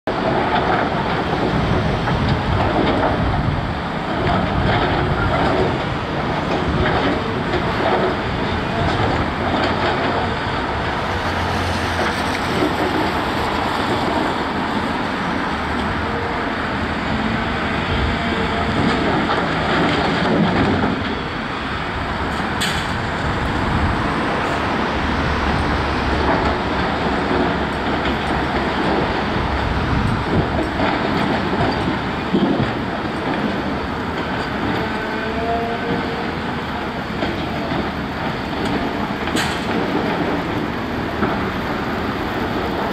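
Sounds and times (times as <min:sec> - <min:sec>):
heavy diesel machinery rumbling: 0:00.1 - 0:42.9.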